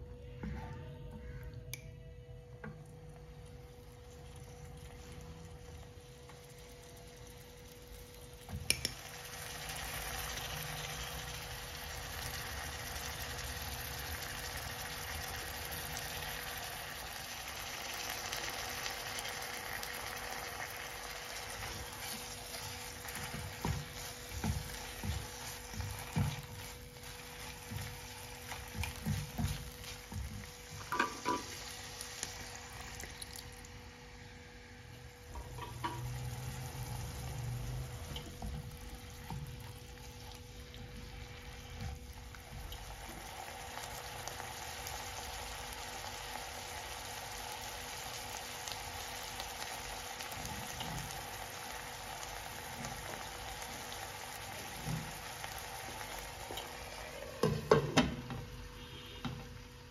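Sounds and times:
sizzling and bubbling: 0.0s - 59.9s
chicken frying in oil: 2.5s - 59.9s
spatula scraping pan: 21.4s - 31.6s.

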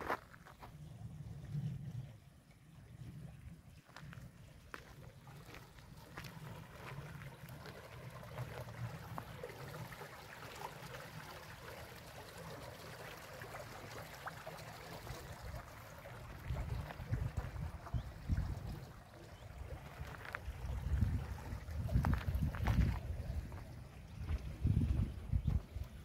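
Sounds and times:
stream trickling: 0.0s - 26.0s
wind rumbling on microphone: 16.2s - 26.0s.

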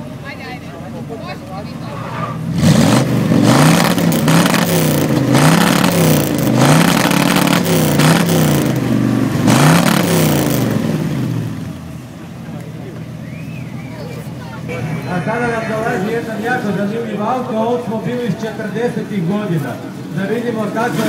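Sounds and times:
car engine revving: 1.6s - 15.1s.

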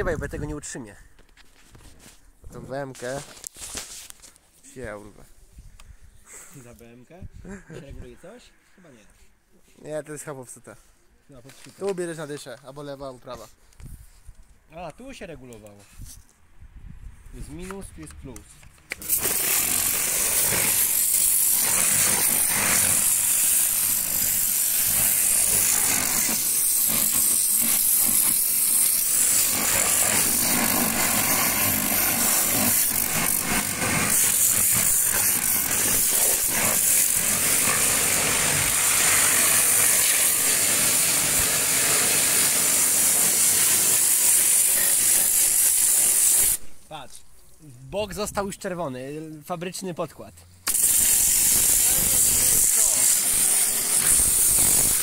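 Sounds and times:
pressure washer spraying: 18.9s - 46.7s, 50.7s - 55.0s.

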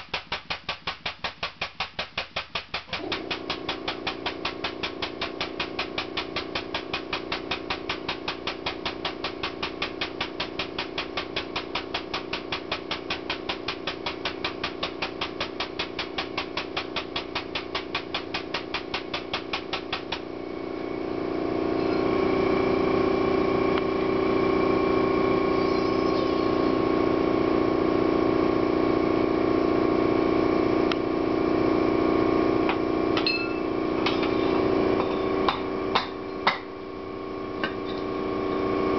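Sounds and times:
air pump chattering: 0.0s - 20.4s
air compressor running: 2.4s - 38.9s.

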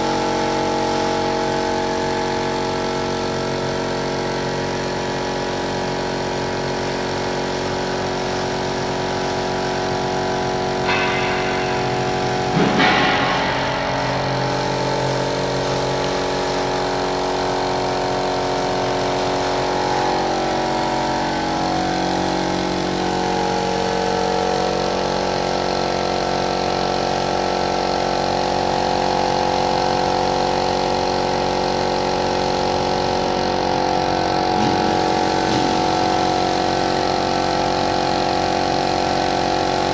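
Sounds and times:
paint spray gun hissing: 0.8s - 24.1s, 30.0s - 39.9s
short knock: 10.9s - 14.6s.

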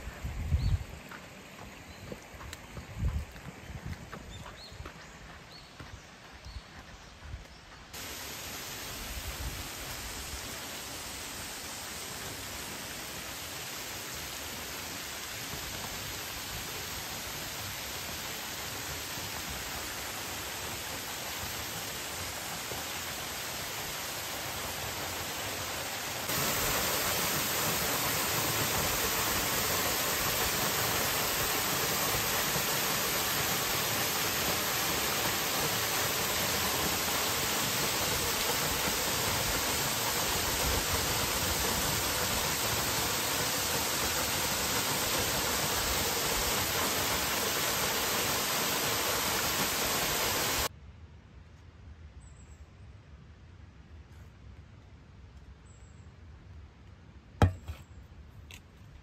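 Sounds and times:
waterfall rushing: 8.0s - 50.7s.

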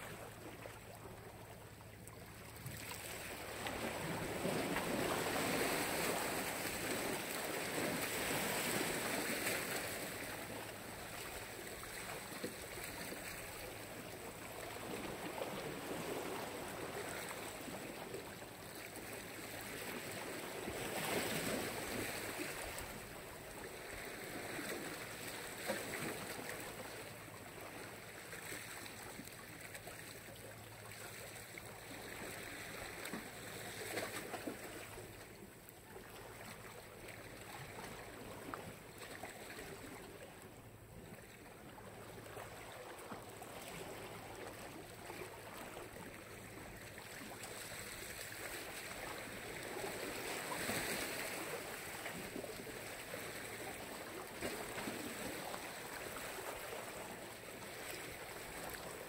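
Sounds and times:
surf washing ashore: 2.6s - 29.2s.

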